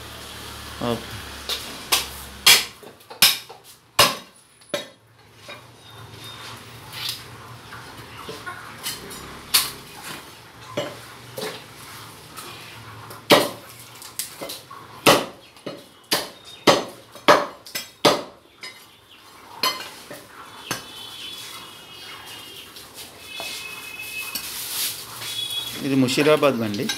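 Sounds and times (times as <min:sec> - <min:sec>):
cleaver chopping on wooden block: 0:15.0 - 0:18.4.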